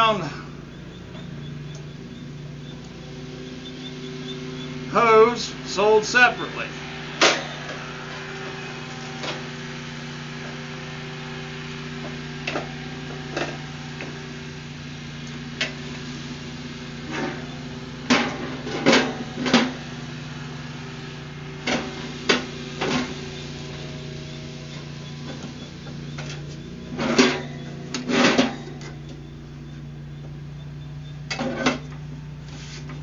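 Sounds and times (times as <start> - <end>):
metal grill clunks and knocks: 27.0 - 29.0.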